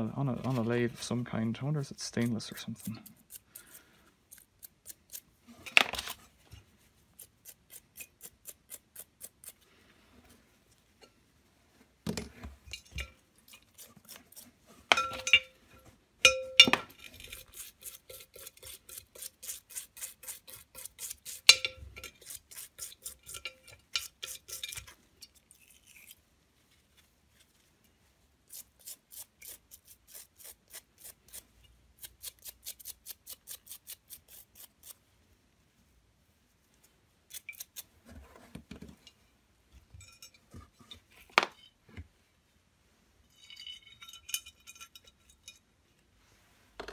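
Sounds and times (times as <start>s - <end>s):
brush scrubbing metal parts: 0.3s - 6.3s, 12.7s - 15.5s, 16.9s - 25.4s
metal parts knocking on glass bowl: 14.9s - 15.5s.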